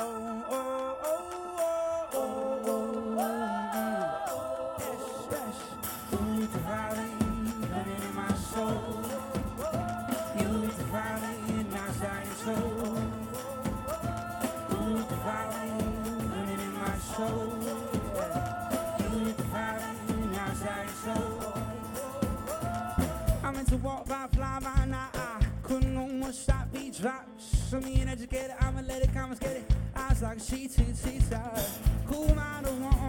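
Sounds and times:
man singing: 0.0s - 33.0s
strummed acoustic guitar: 5.5s - 26.6s.

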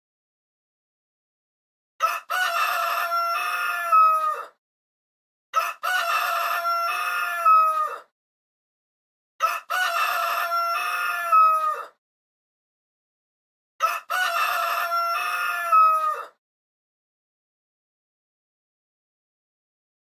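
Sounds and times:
rooster crowing: 2.0s - 4.6s, 5.6s - 8.1s, 9.4s - 12.0s, 13.8s - 16.4s.

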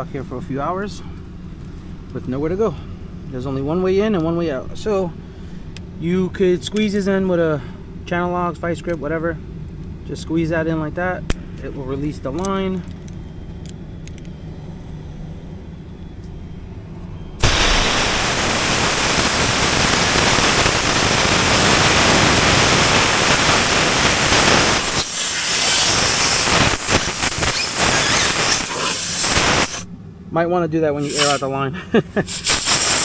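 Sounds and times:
compressed air hissing: 17.4s - 29.9s, 31.0s - 31.5s, 32.2s - 33.0s.

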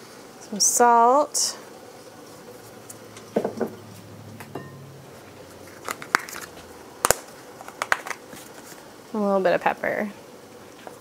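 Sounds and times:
pepper grinder crackling clicks: 5.8s - 8.2s.

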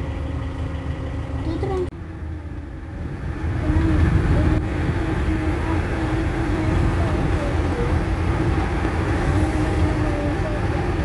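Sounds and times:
engine and road rumble: 0.0s - 11.0s.

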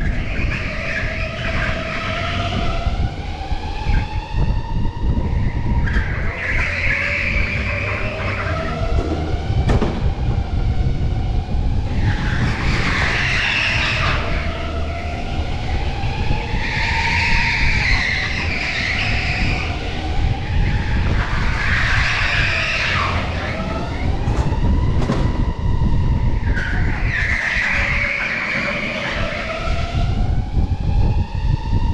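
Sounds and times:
chassis rumble: 0.0s - 31.9s
tyres squealing: 5.9s - 9.7s, 11.9s - 24.2s.

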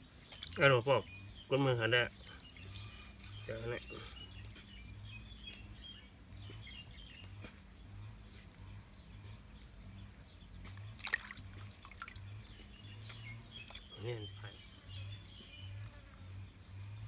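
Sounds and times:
water dripping and trickling: 0.0s - 5.7s, 6.3s - 15.1s
fish splashing into bowl: 10.8s - 12.4s.

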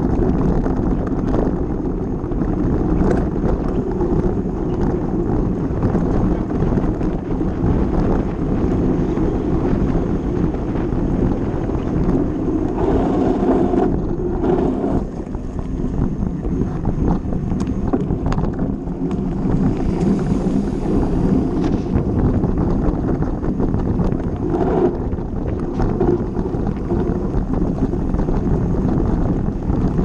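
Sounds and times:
bike tyres rumbling on dirt: 0.0s - 30.0s
sharp rattles over bumps: 0.0s - 30.0s
wind buffeting microphone: 0.0s - 30.0s.

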